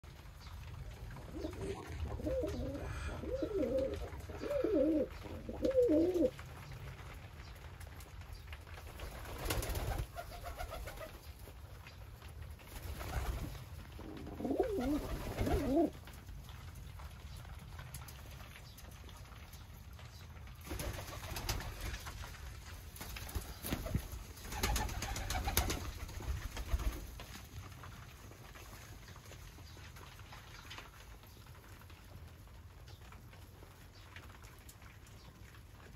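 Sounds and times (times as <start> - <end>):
pigeons cooing: 1.0 - 6.4, 13.9 - 16.0.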